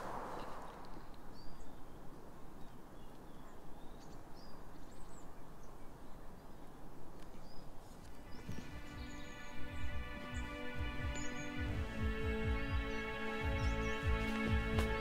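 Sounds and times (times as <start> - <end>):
bird chirps: 0.1 - 2.0, 7.4 - 15.0.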